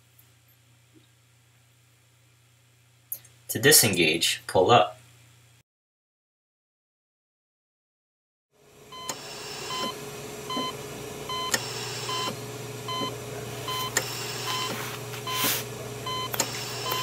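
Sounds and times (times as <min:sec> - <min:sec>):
electrical hum: 0:08.6 - 0:17.0
patient monitor beeping: 0:08.9 - 0:17.0
clicks: 0:16.2 - 0:17.0.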